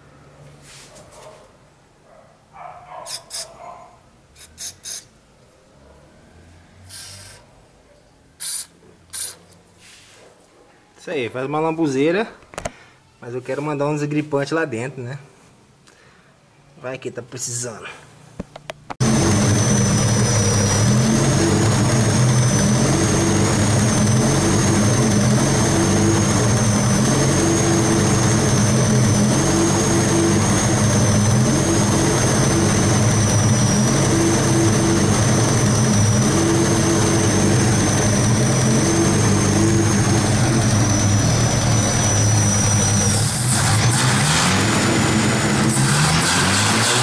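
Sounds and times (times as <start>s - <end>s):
thin high whistle: 4.4s - 5.1s
car engine running: 19.0s - 47.0s.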